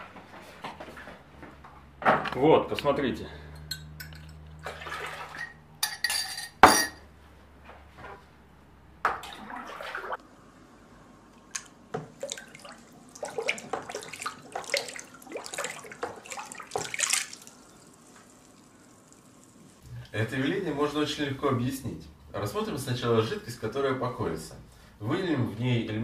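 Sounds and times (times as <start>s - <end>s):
water sloshing in plastic basin: 4.2s - 5.6s, 9.0s - 10.2s, 11.5s - 17.8s.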